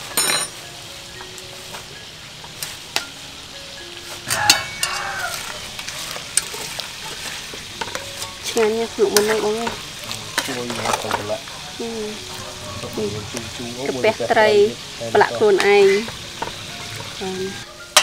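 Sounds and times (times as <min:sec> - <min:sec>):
metal clinks on pot: 0:00.0 - 0:00.6, 0:04.3 - 0:05.3
ladle stirring in pot: 0:04.0 - 0:13.6, 0:14.8 - 0:17.2.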